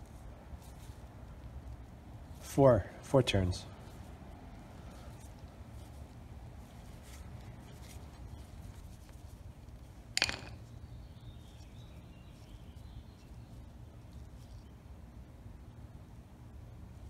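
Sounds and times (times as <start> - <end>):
tool clattering down: 10.2 - 10.6.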